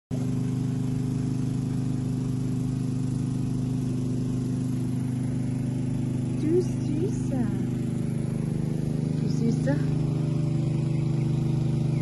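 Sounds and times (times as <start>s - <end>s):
motor humming: 0.1s - 12.0s.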